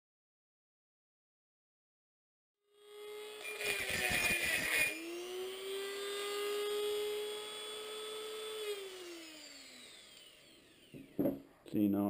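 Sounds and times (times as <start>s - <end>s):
rotary tool whine: 2.7s - 11.6s
rotary tool grinding metal: 2.8s - 11.4s.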